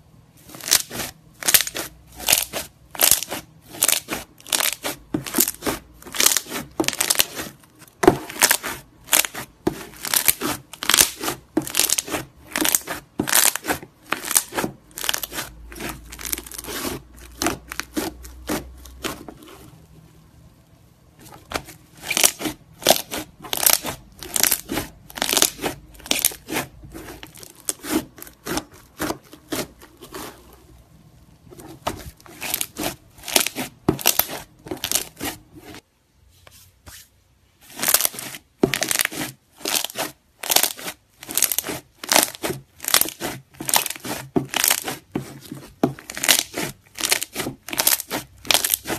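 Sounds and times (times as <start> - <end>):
slime crackling and popping: 0.5 - 19.5, 21.5 - 30.3, 32.4 - 35.3, 37.7 - 45.4, 46.0 - 48.9.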